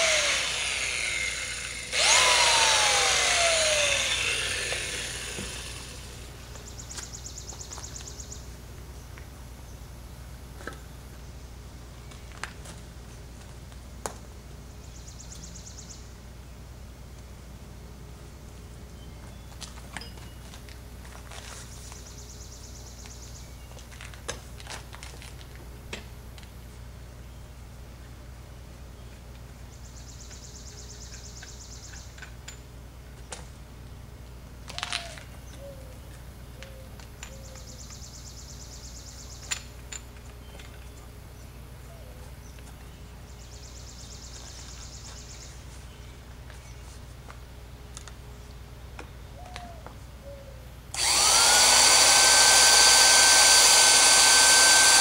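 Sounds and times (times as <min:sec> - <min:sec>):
steady low hum: 0:00.0 - 0:24.6
drill chuck key ticking: 0:51.0 - 0:55.0.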